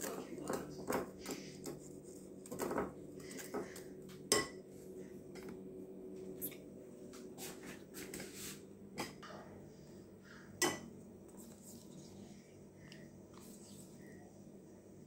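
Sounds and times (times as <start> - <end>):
chopsticks stirring flour: 0.0 - 4.4
steady low hum: 0.0 - 15.0.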